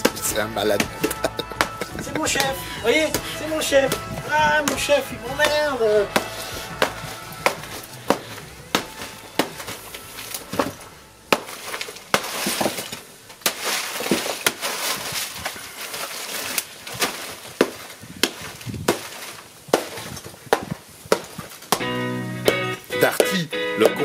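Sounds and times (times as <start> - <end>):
hammer blows smashing plaster: 0.0 - 21.9
debris rattling onto concrete floor: 6.8 - 17.5.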